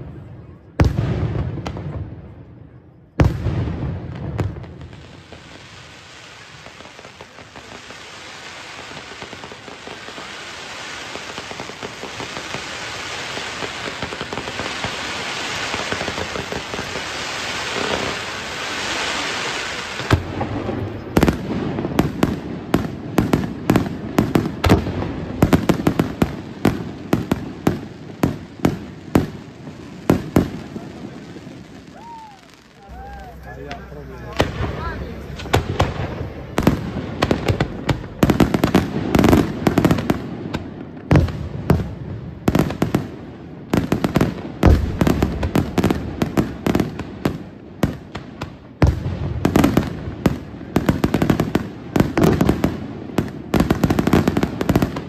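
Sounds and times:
firework bangs: 0.0s - 55.0s
hissing crackle of fountain fireworks: 0.0s - 55.0s.

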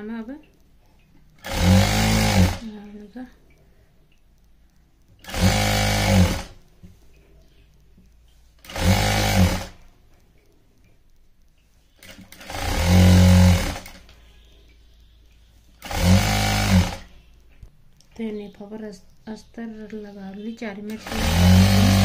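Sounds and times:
industrial sewing machine stitching: 1.4s - 2.7s, 5.2s - 6.6s, 8.6s - 9.8s, 12.0s - 14.0s, 15.8s - 17.1s, 20.9s - 22.0s.

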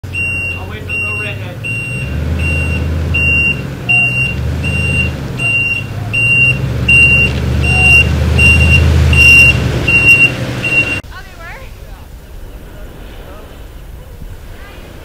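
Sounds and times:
back-up alarm beeping: 0.0s - 11.0s
truck engine rumbling: 0.0s - 15.0s.

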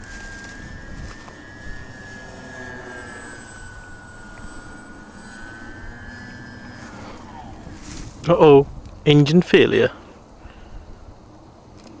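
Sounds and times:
model plane motors whining: 0.0s - 9.0s.

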